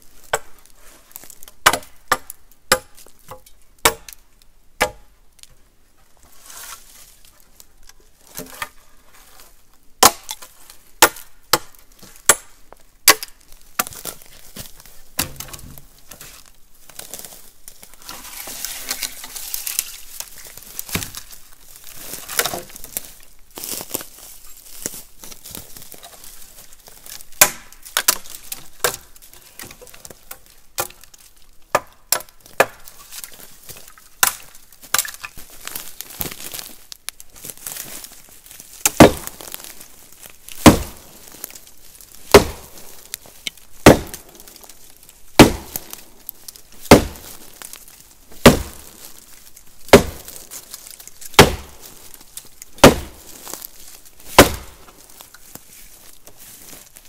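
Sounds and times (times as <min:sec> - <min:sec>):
axe chopping deadwood: 0:00.2 - 0:00.5, 0:01.5 - 0:04.2, 0:04.8 - 0:05.1, 0:10.0 - 0:15.8, 0:20.9 - 0:21.2, 0:22.3 - 0:22.7, 0:27.4 - 0:29.0, 0:29.6 - 0:31.0, 0:31.7 - 0:32.9, 0:34.2 - 0:35.2, 0:38.8 - 0:39.7, 0:40.5 - 0:41.4, 0:42.3 - 0:42.9, 0:43.5 - 0:44.5, 0:45.4 - 0:46.0, 0:46.9 - 0:47.4, 0:48.4 - 0:49.1, 0:49.9 - 0:50.4, 0:51.3 - 0:51.9, 0:52.8 - 0:53.6, 0:54.3 - 0:55.0.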